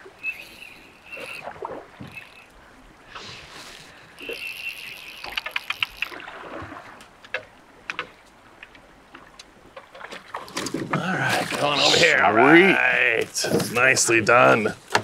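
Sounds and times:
water splashing around boat: 0.0s - 15.0s
sharp clicks: 4.2s - 6.2s.

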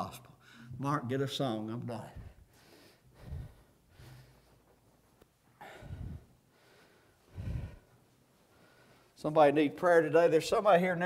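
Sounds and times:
faint breaths: 2.0s - 9.3s.

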